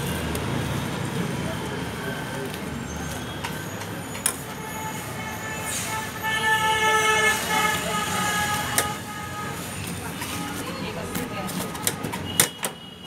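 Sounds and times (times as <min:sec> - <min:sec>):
street traffic: 0:00.0 - 0:13.0
vehicle horn: 0:04.5 - 0:10.8.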